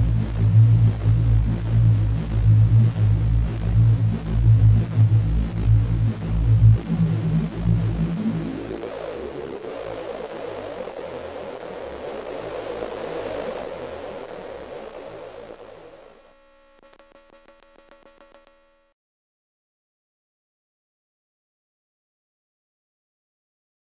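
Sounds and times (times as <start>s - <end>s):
grainy noise drone with whine: 0.0s - 19.0s.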